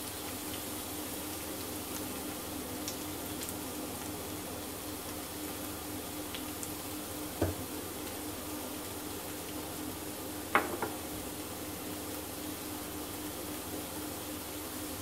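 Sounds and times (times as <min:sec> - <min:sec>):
garlic sizzling in oil: 0:00.0 - 0:15.0.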